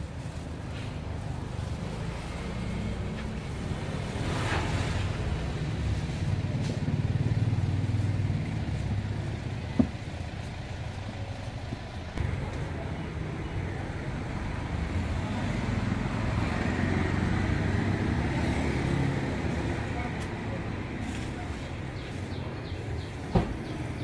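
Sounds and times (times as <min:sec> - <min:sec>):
vehicle engine passing: 0:01.2 - 0:10.6, 0:12.2 - 0:20.2.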